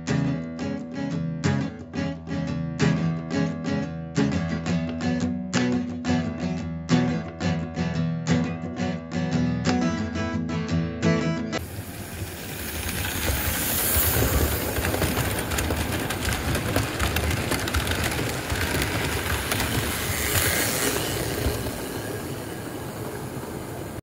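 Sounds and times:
model train wheels clicking on rails: 0:11.6 - 0:24.0.

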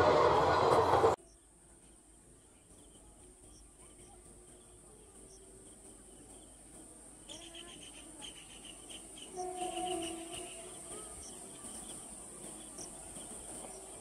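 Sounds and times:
birds chirping: 0:01.2 - 0:14.0
crickets chorus: 0:04.5 - 0:14.0.

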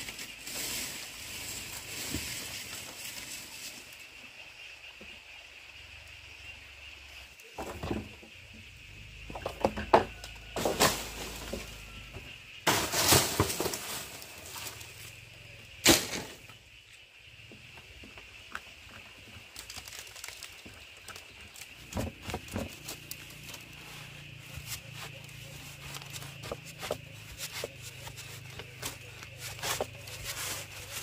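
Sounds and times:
dry rustling: 0:12.7 - 0:15.1, 0:19.6 - 0:31.0.

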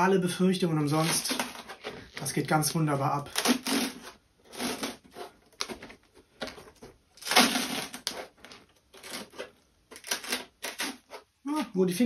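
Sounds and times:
dried paste crackling: 0:00.0 - 0:12.0
plastic ball rustling: 0:00.6 - 0:11.7.

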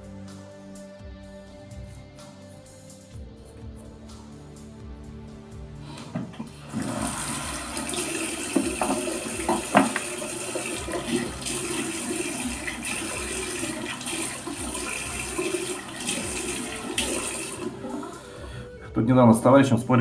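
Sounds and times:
water splashes and knocks: 0:06.0 - 0:17.8
sink tap running: 0:06.0 - 0:18.4.

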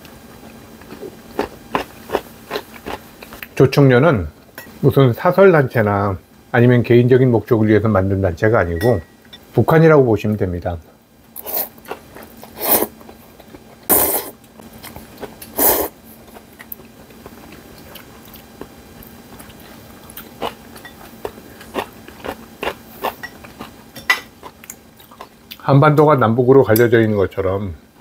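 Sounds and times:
man slurping noodles: 0:12.6 - 0:12.9, 0:13.9 - 0:14.4, 0:15.6 - 0:16.0
chewing with small clicks: 0:16.2 - 0:23.7, 0:24.4 - 0:25.6.

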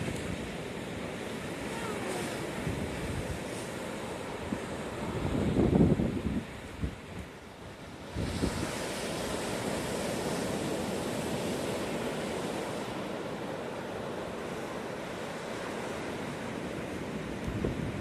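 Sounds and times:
surf breaking on beach: 0:00.0 - 0:18.0
wind buffeting microphone: 0:02.2 - 0:03.7, 0:04.4 - 0:11.6, 0:16.9 - 0:18.0.

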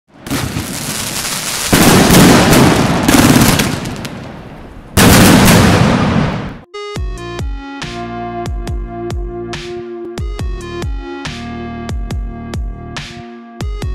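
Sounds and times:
loud firework blasts: 0:00.1 - 0:06.6
fireworks crackling: 0:00.2 - 0:06.6.

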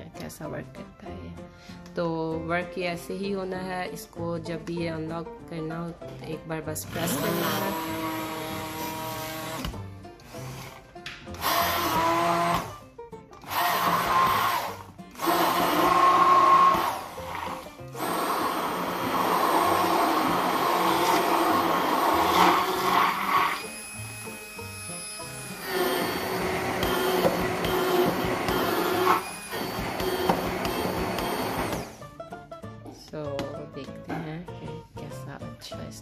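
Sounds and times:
hand blender blending: 0:06.9 - 0:12.8, 0:13.4 - 0:32.0.

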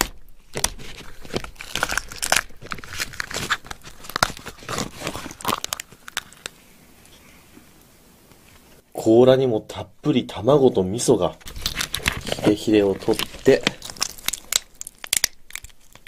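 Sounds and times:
crab shell cracking and crunching: 0:00.0 - 0:06.6, 0:11.4 - 0:16.0.

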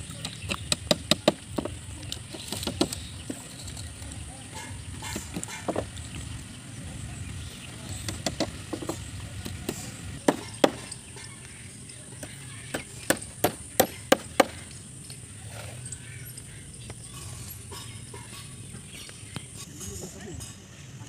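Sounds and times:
hammer striking nails into wood: 0:00.5 - 0:01.8, 0:08.1 - 0:10.9, 0:13.0 - 0:14.7.

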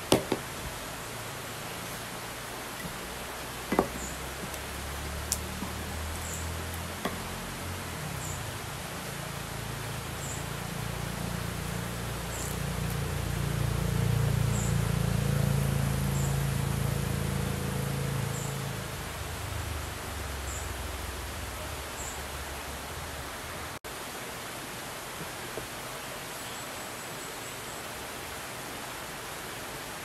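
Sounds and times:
river water rushing: 0:00.0 - 0:20.2
low hum: 0:03.8 - 0:19.7.

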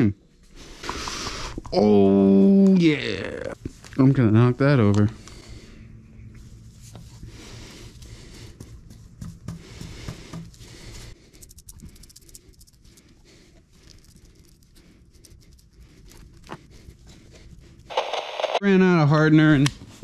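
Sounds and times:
low steady hum: 0:00.0 - 0:19.9
brush patting and scratching: 0:06.3 - 0:17.9.

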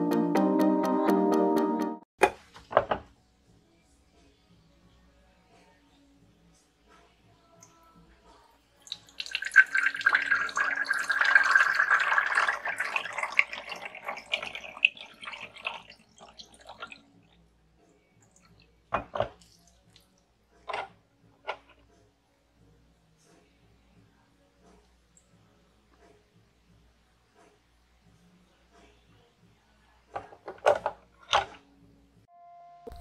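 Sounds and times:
water pouring and splashing: 0:08.9 - 0:17.0.

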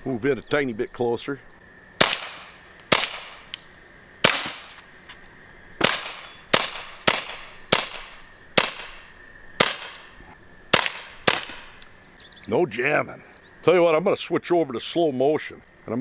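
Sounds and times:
pellet pistol shots: 0:02.0 - 0:03.5, 0:04.2 - 0:04.8, 0:05.8 - 0:11.8.

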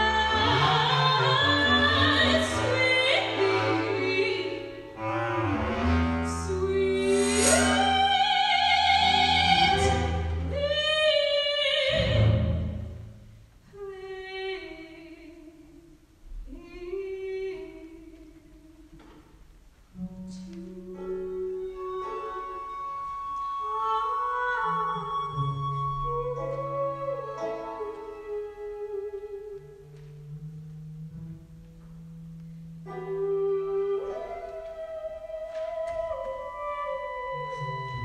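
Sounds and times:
soprano singing: 0:00.0 - 0:12.8, 0:13.7 - 0:18.9, 0:20.0 - 0:30.4, 0:32.9 - 0:38.0
chamber ensemble playing: 0:01.7 - 0:08.2.

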